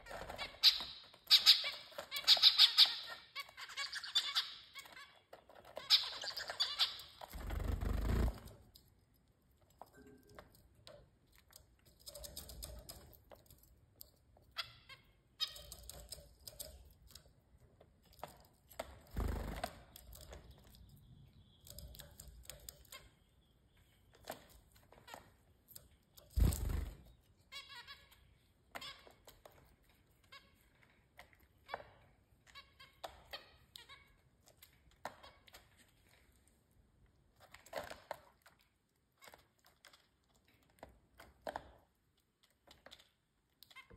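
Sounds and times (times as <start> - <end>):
wing flutters: 7.2 - 8.6, 26.3 - 27.1.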